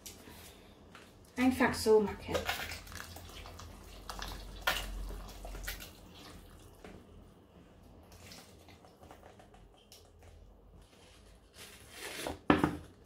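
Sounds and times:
thin stream into liquid: 2.4 - 6.9.

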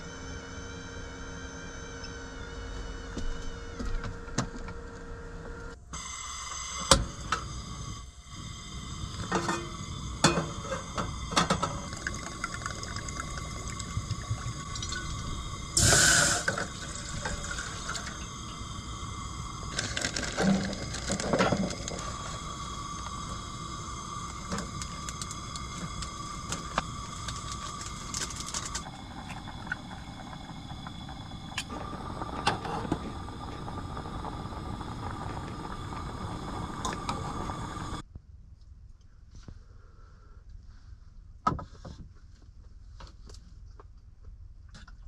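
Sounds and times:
loud hissing rush: 7.1 - 38.0
water pouring into pot: 8.4 - 38.0.

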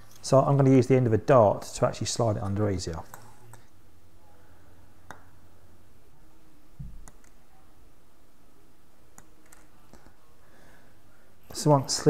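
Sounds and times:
small plastic clicks: 9.2 - 10.2.

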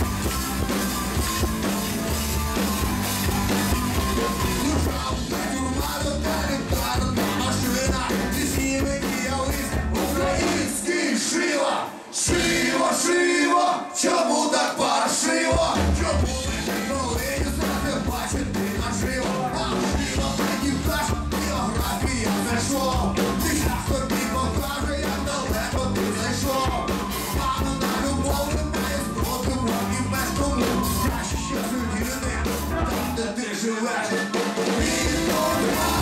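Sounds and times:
electric guitar: 0.0 - 10.6, 34.3 - 36.0
bass and drums beat: 0.0 - 10.8, 12.3 - 12.8, 15.5 - 33.3, 34.3 - 36.0
men singing: 4.2 - 36.0.

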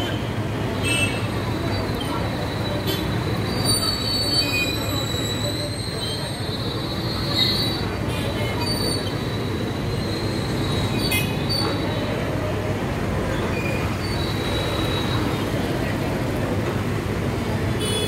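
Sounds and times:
high-pitched squeal from truck: 1.3 - 12.3, 13.3 - 15.6.

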